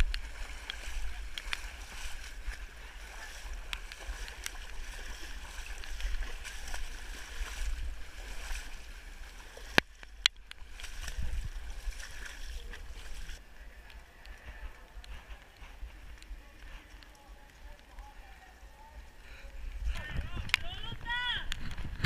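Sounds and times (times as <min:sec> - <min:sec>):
splashing through water: 0:00.0 - 0:15.0.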